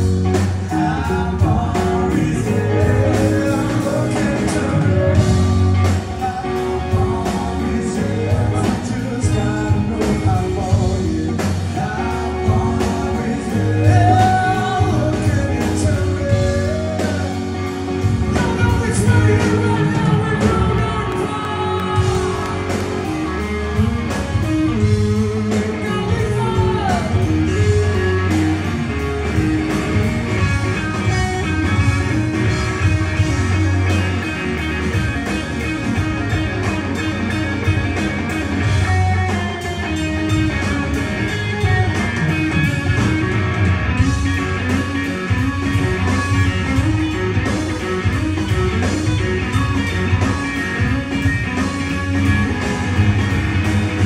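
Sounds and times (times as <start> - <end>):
bass guitar: 0.0 - 54.0
drum kit: 0.0 - 54.0
electric guitar: 0.0 - 54.0
man singing: 0.3 - 23.0, 24.4 - 28.4.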